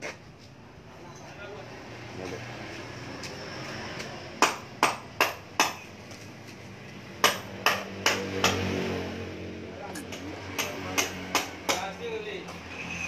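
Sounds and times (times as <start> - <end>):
hammer striking metal: 7.2 - 8.6, 10.0 - 11.9.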